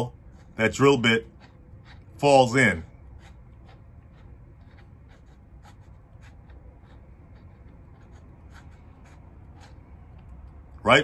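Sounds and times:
drill chuck scratchy rubbing: 0.0s - 10.4s.

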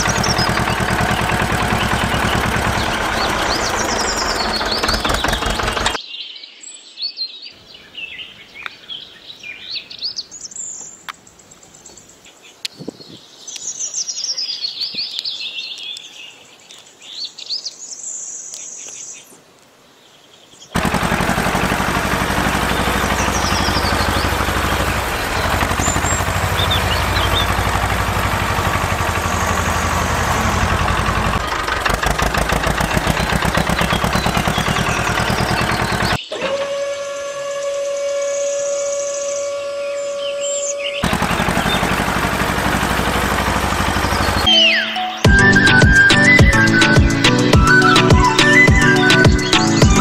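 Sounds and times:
tractor engine chugging: 0.0s - 6.0s, 20.8s - 36.6s, 41.0s - 44.5s, 45.3s - 50.0s
birds chirping: 0.0s - 19.4s, 20.0s - 36.4s, 38.0s - 50.0s.

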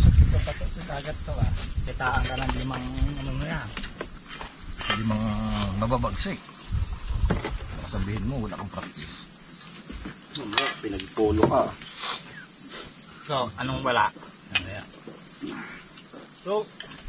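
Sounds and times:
pulsing insect chorus: 0.0s - 17.0s
man's drawn-out voice: 4.9s - 6.2s.

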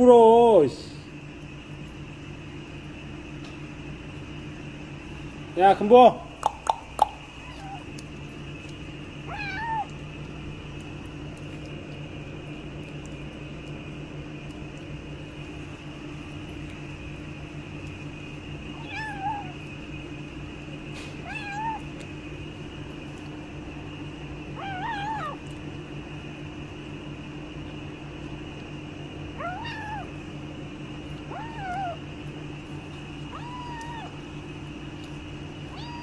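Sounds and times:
low background hum: 0.0s - 36.0s
kitten mewing: 6.3s - 10.3s, 18.6s - 19.9s, 20.9s - 22.2s, 24.4s - 25.6s, 29.3s - 30.3s, 31.0s - 36.0s.

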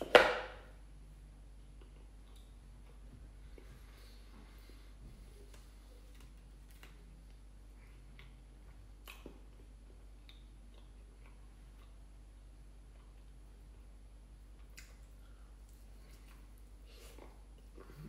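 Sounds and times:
low steady hum: 0.0s - 18.0s
chewing and mouth sounds: 5.2s - 18.0s.

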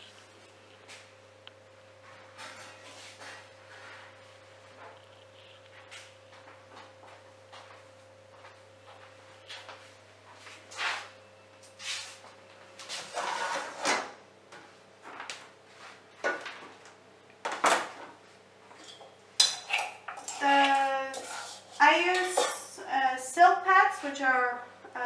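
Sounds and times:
spoon scraping in metal bowl: 18.9s - 22.6s
person talking: 20.4s - 25.0s.

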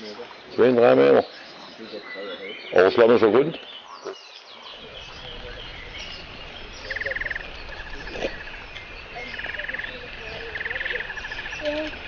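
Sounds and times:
birds chirping and whistling: 0.3s - 12.0s
bird buzzing trill: 4.8s - 12.0s
low rumble: 4.8s - 12.0s.

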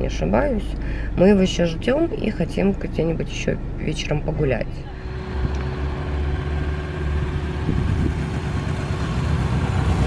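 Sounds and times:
low engine hum: 0.0s - 10.0s
motorcycle engine approaching: 4.9s - 10.0s.

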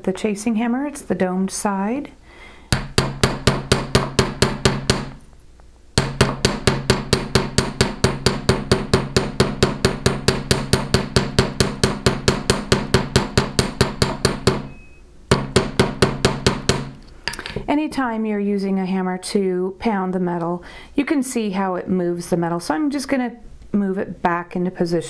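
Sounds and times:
hammer striking wire on steel: 2.7s - 5.2s, 6.0s - 17.0s.

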